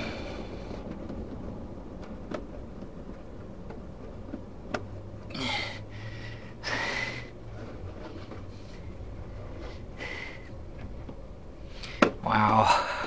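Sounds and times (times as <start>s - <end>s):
person breathing out heavily: 5.3s - 7.4s.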